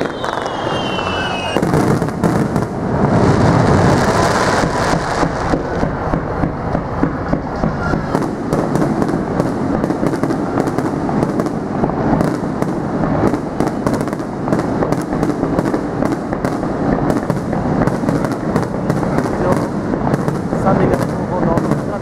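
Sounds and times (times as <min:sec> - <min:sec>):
firework shells bursting: 0:00.0 - 0:02.7.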